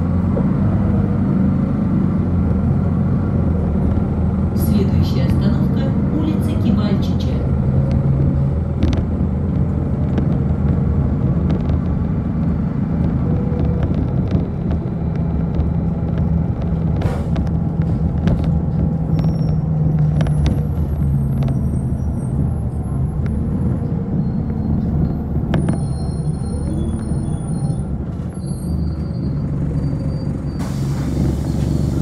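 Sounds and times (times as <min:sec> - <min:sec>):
bus driving rumble: 0:00.0 - 0:32.0
rattles and clicks: 0:07.8 - 0:21.7.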